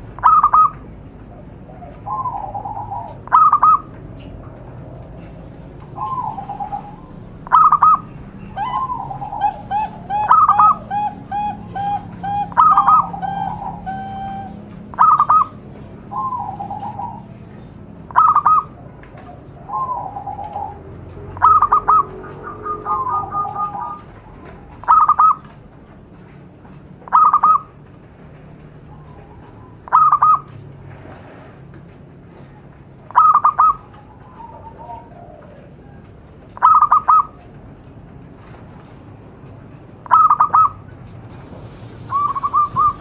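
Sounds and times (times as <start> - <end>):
doves cooing: 0.0 - 25.5, 32.4 - 37.5, 40.1 - 43.0
dove double note call: 6.0 - 17.3, 41.5 - 43.0.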